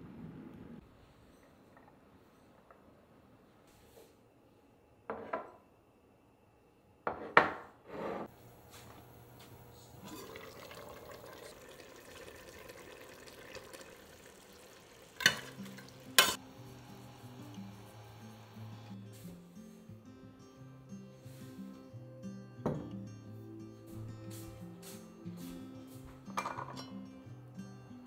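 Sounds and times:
dishes set down on table: 5.1s - 5.6s, 7.1s - 7.7s, 22.6s - 23.0s, 26.3s - 26.9s
low hiss of cooking: 8.3s - 20.0s
soft background music: 15.2s - 28.0s.

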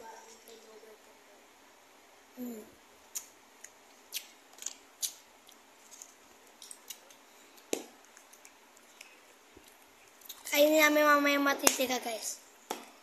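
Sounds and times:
person humming: 2.4s - 2.7s.

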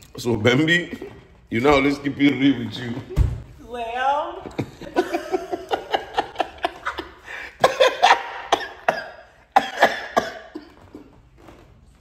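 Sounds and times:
person coughing: 7.6s - 11.3s.

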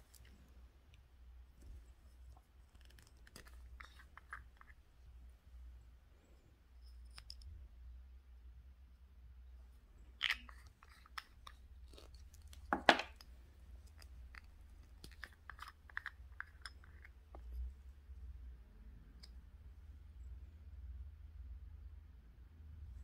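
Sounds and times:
plastic jars clicking and tapping: 10.2s - 17.6s
plastic jar knocks: 12.7s - 13.1s.

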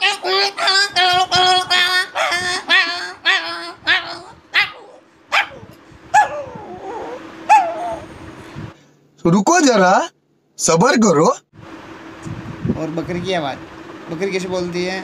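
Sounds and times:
man imitating dogs barking: 0.0s - 8.1s.

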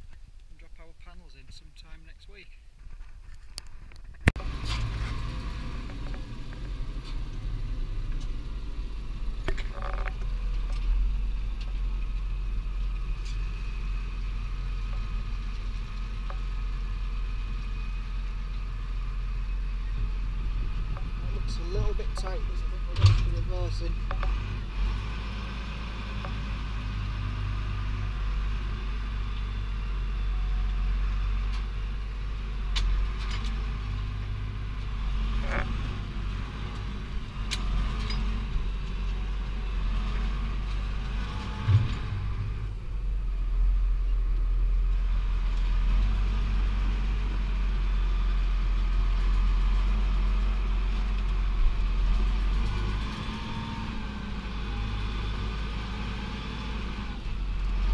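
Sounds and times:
tractor engine droning: 3.7s - 57.9s
knocks and rattles: 9.4s - 11.0s, 41.1s - 42.8s.

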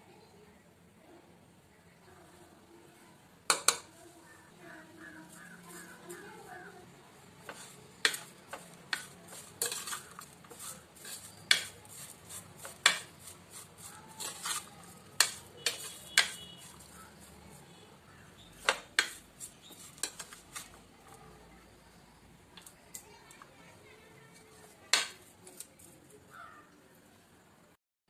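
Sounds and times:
plastic spoon scraping bowl: 7.4s - 17.6s.

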